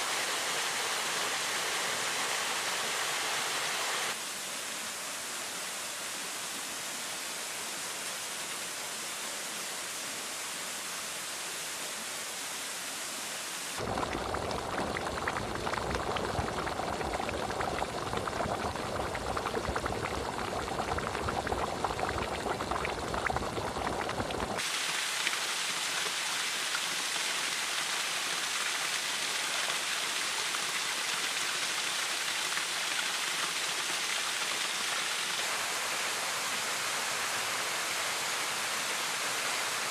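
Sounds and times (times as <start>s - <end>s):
water running over rock: 13.8s - 35.4s.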